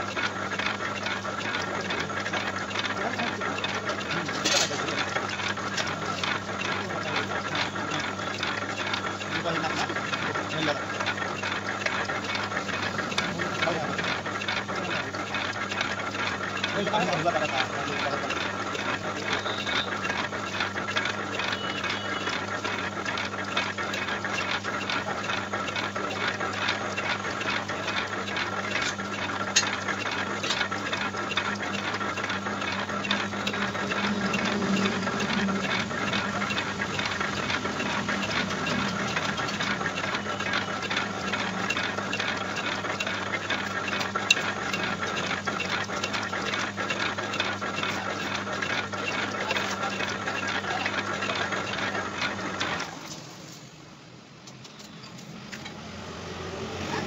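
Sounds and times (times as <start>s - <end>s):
boring bar rattling: 0.0s - 53.2s
lathe machine hum: 0.0s - 53.8s.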